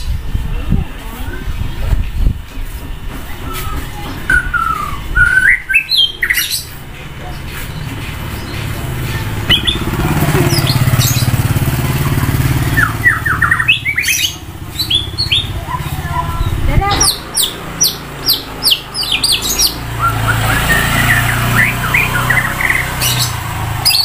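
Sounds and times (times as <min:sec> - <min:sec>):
bird singing whistles and chatter: 0:03.0 - 0:24.0
vehicle engine passing: 0:06.5 - 0:24.0.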